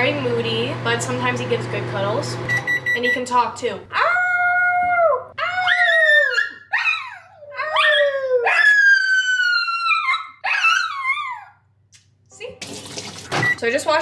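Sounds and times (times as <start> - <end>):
woman howling: 3.9 - 11.6.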